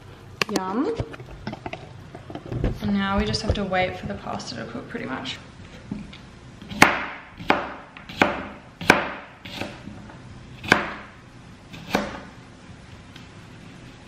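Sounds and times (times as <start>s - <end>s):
knife chopping on cutting board: 6.7s - 9.9s, 10.6s - 11.1s, 11.7s - 12.3s.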